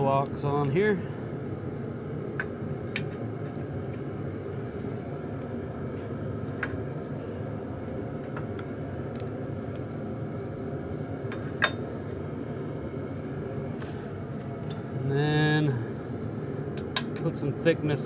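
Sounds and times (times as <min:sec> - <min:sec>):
shop machinery drone: 0:00.0 - 0:18.0.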